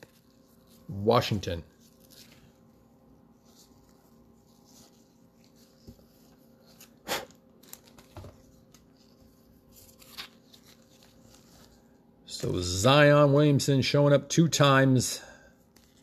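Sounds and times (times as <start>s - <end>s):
low steady hum: 0.0s - 16.0s
trading cards clicking and rustling: 6.7s - 8.9s.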